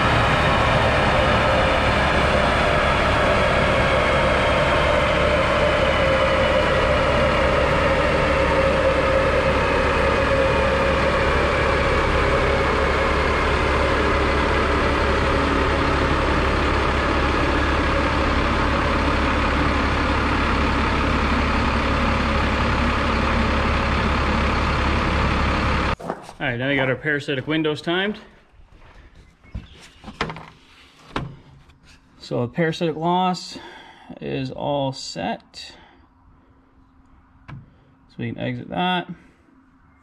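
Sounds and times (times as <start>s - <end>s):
rollers whine falling in pitch: 0.0s - 26.0s
diesel engine idling: 0.0s - 28.5s.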